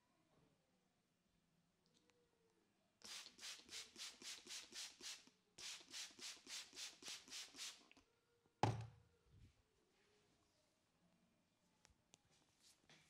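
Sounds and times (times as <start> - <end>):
spray bottle hissing: 3.1 - 7.9.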